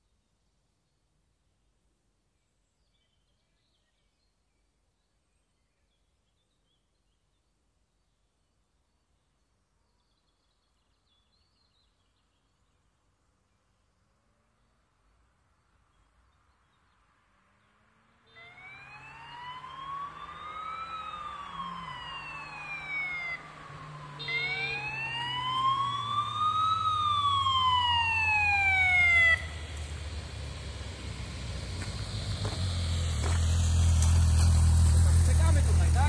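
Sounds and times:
wailing siren: 0:18.3 - 0:29.8
motorcycle engine: 0:18.4 - 0:28.1, 0:28.9 - 0:36.0.

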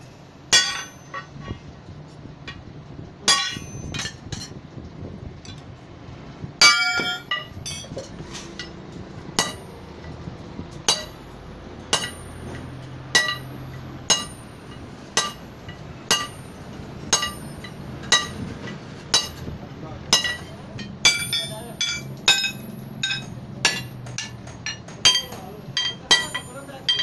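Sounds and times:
sledgehammer clanging on anvil: 0:00.5 - 0:01.6, 0:03.2 - 0:04.6, 0:06.6 - 0:08.8, 0:09.4 - 0:10.1, 0:10.9 - 0:27.0.

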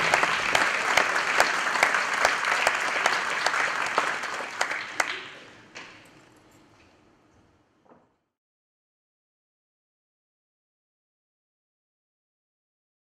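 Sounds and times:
audience applauding: 0:00.0 - 0:05.6.

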